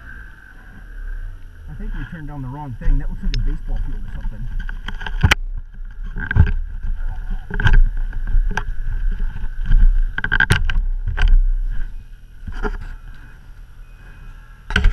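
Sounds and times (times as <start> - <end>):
snowmobile engines droning: 0.0 - 4.7, 10.9 - 14.9.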